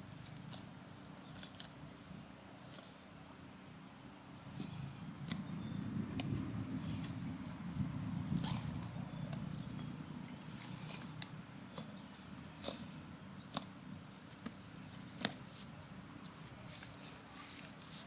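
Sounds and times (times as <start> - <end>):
cow tearing grass: 4.4 - 18.0.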